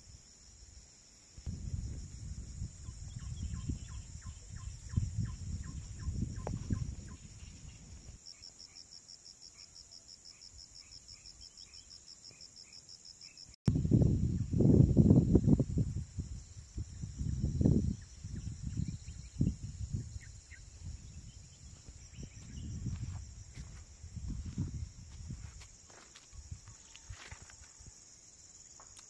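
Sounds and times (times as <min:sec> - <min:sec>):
insects buzzing: 0:00.0 - 0:29.0
pulsing insect trill: 0:00.0 - 0:29.0
wind buffeting microphone: 0:01.4 - 0:08.2, 0:13.7 - 0:27.9.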